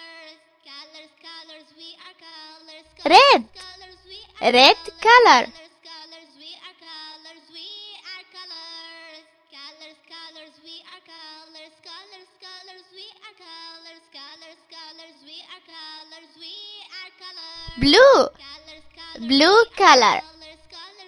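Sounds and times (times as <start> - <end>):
light children's music: 19.1 - 20.6.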